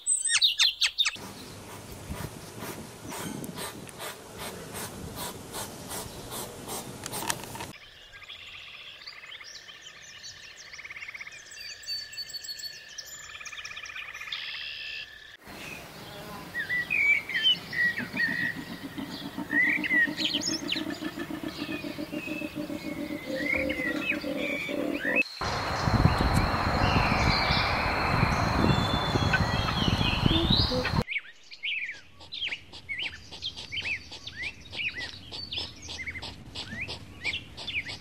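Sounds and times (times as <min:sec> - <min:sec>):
birds chirping: 0:00.0 - 0:38.0
low rapid pulsing: 0:17.6 - 0:31.0
beaver whining: 0:17.9 - 0:25.2.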